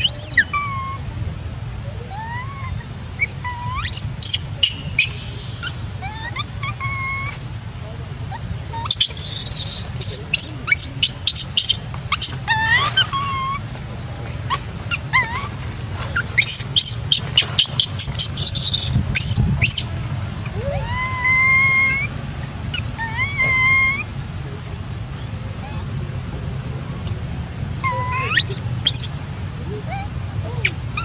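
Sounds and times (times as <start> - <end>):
infant monkey squealing and wailing: 0.0 - 1.1, 1.9 - 7.4, 8.2 - 13.7, 14.5 - 24.1, 25.6 - 25.9, 27.8 - 29.1, 29.7 - 31.0.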